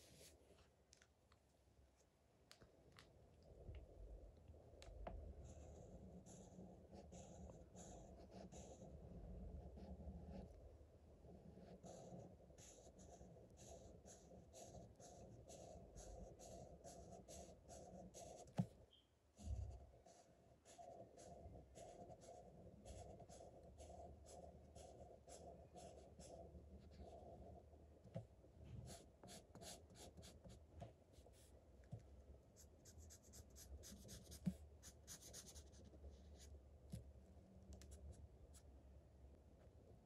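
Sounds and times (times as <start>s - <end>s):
steady low hum: 1.5s - 40.0s
marker scratching on paper: 5.4s - 9.0s, 11.4s - 18.7s, 19.4s - 27.5s, 28.9s - 30.6s, 32.8s - 36.5s.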